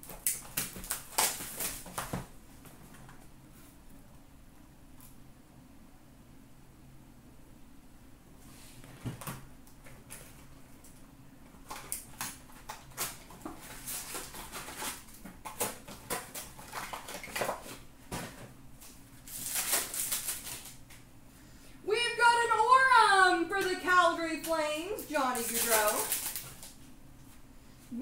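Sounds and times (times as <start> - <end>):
plastic wrap and foil crinkling: 0.0 - 2.3, 11.6 - 21.0, 23.6 - 27.4.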